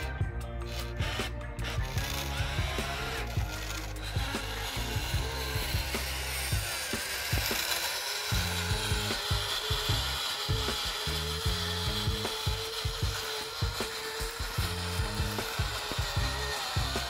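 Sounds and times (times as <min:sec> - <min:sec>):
electric motor whine: 0:00.0 - 0:17.0
gears grinding and rattling: 0:00.0 - 0:17.0.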